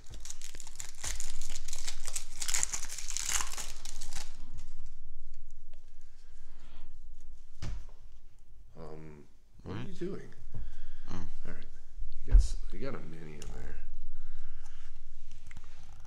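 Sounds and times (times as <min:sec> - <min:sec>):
wrapper tearing and crinkling: 0:00.0 - 0:04.7.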